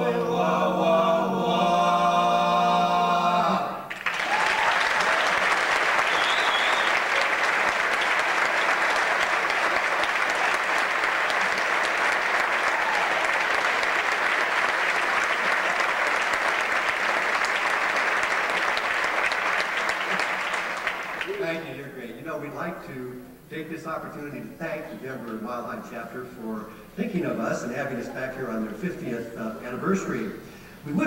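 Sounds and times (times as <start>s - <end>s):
audience applauding: 3.9s - 21.7s.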